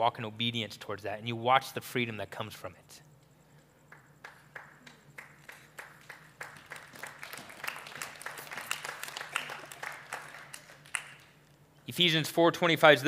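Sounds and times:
audience clapping: 3.9 - 11.5.

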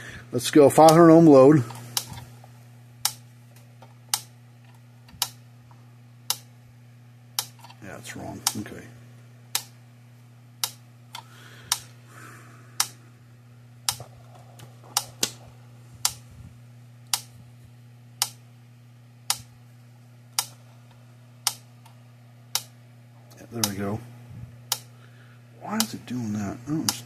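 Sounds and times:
steady low hum: 0.0 - 27.0
electric fence charger clicks: 0.7 - 6.5, 7.3 - 8.8, 9.5 - 9.8, 10.6 - 12.0, 12.8 - 13.0, 13.8 - 16.2, 17.0 - 17.4, 18.1 - 18.5, 19.2 - 19.6, 20.3 - 23.9, 24.7 - 25.0, 25.6 - 27.0.

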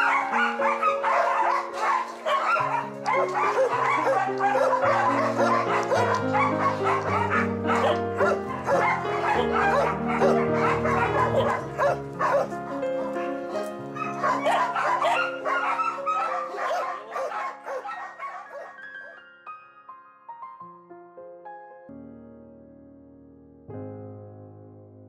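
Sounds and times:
slow sustained music chords: 0.0 - 17.6
dog yipping and whimpering: 0.0 - 19.2.

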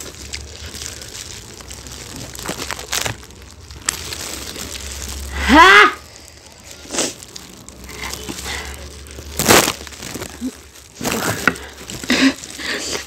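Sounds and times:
small clicks and crackles: 0.0 - 5.3, 6.1 - 13.0
people chewing: 0.0 - 13.0
plastic gloves crinkling: 0.0 - 13.0
person crying out: 5.3 - 6.0.

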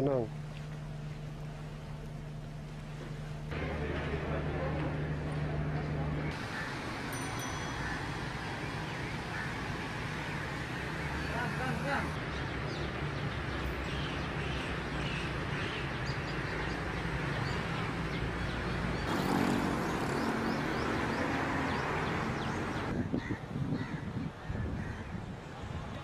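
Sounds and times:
birds chirping: 5.4 - 23.0.

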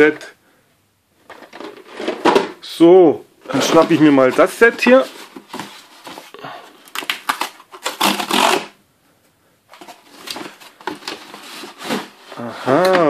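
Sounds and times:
cardboard rustling: 1.2 - 2.6, 3.5 - 8.7, 9.7 - 13.0
cardboard box torn open: 6.9 - 8.7.

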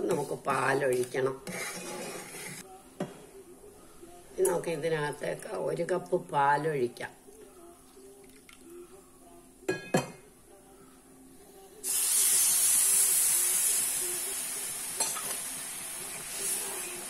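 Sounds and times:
milk sizzling in hot pan: 11.8 - 17.0.

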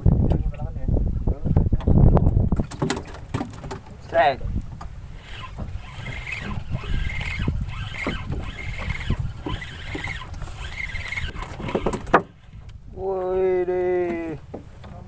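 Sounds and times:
low rumble of wind and boat: 0.0 - 15.0
fishing reel squeaky whir: 5.1 - 12.7.

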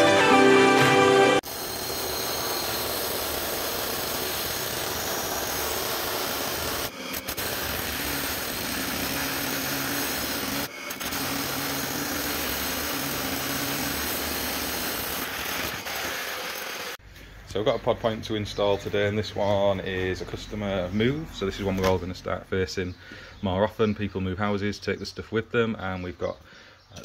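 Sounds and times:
hammer drill boring through brick: 1.4 - 17.0.

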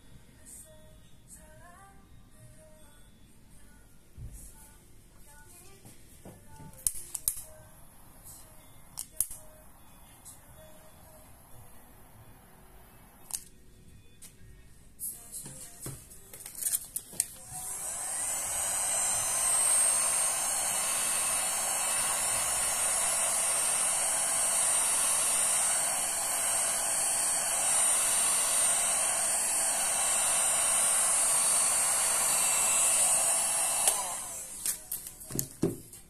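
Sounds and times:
heat gun fan whining: 6.6 - 13.5, 15.8 - 35.7.

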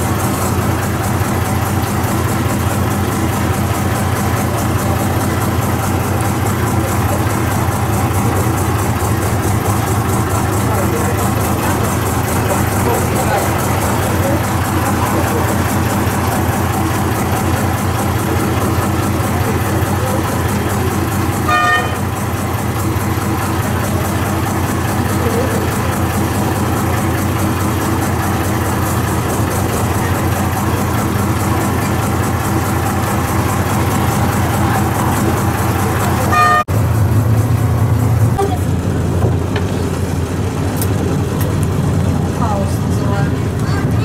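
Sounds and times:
motorboat engine droning: 0.0 - 44.0
short horn toot: 21.5 - 22.1, 36.3 - 36.6.

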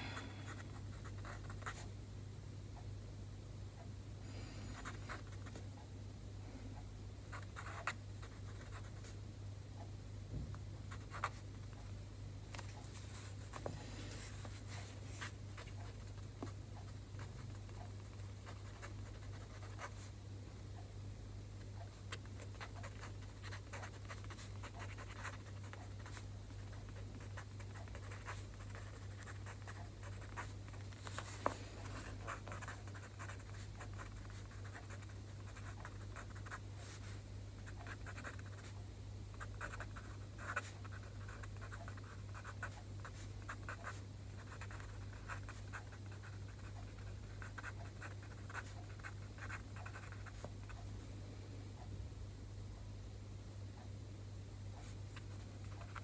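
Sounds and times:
steady low hum: 0.0 - 56.0
pen scratching on paper: 7.3 - 9.0, 10.9 - 11.4, 17.2 - 20.0, 22.1 - 37.0, 37.6 - 38.7, 39.4 - 50.8.

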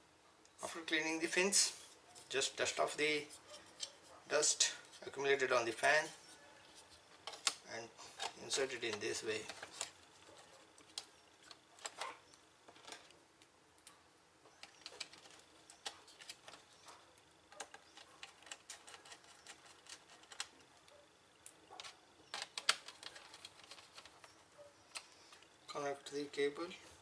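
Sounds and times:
plastic parts clicking and tapping: 7.1 - 12.1, 14.5 - 16.9, 17.5 - 20.6, 21.7 - 25.5.

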